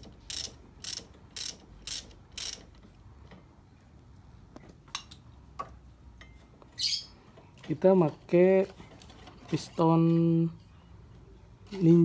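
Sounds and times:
ratchet wrench clicking: 0.0s - 2.7s.

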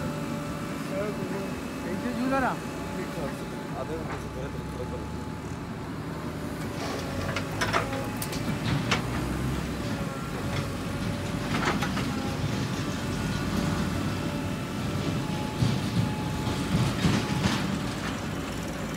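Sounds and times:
diesel engine running: 0.0s - 18.9s.

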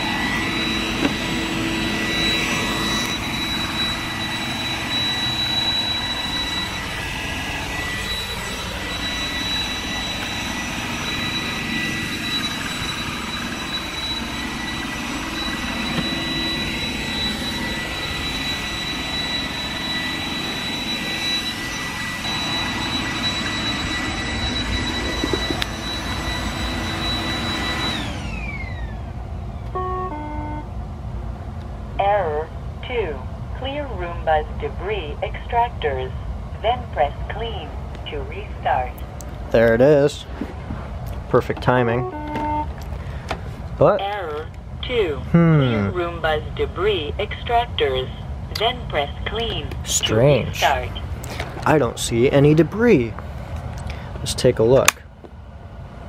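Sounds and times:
short beeps: 0.0s - 28.1s, 29.7s - 30.7s, 41.6s - 42.7s
robot vacuum fan whine: 0.0s - 33.0s, 39.8s - 53.4s.

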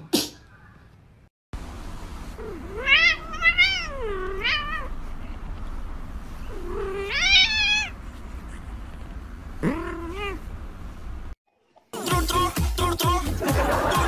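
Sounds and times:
cat meowing: 2.4s - 4.9s, 6.5s - 8.0s.

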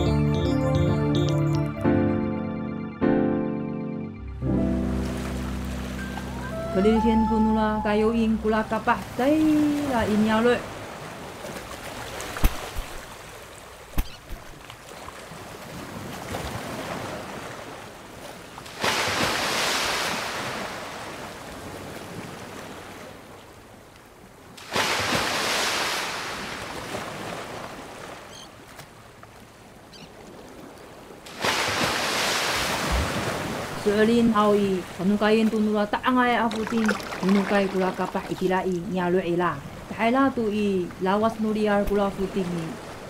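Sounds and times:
ocean waves washing in: 4.2s - 14.0s, 14.8s - 28.3s, 30.3s - 43.0s.

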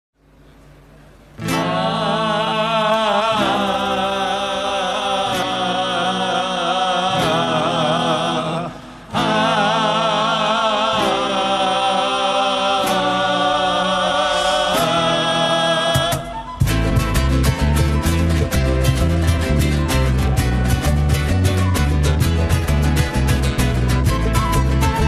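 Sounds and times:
acoustic guitar chords: 0.7s - 25.0s
men singing in harmony: 1.4s - 16.6s.

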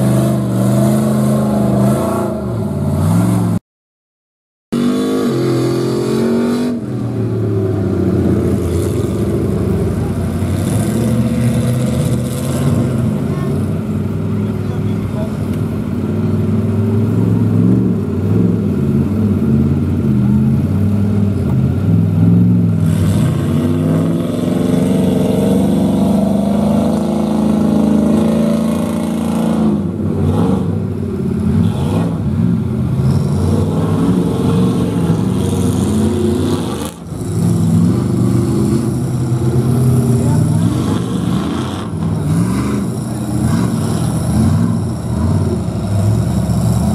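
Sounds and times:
truck engines revving: 0.0s - 3.6s, 4.7s - 46.9s.

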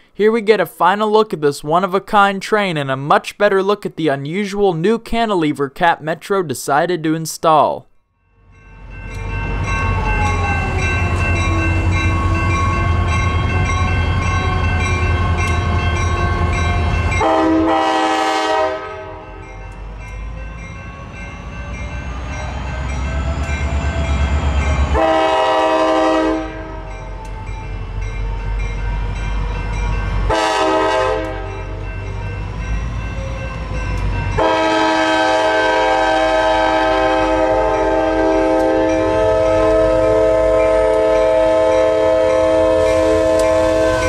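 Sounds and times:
crossing bells ringing: 8.2s - 44.0s
locomotive horn blasts: 16.3s - 19.3s, 24.9s - 26.9s, 30.3s - 31.7s, 34.4s - 44.0s.

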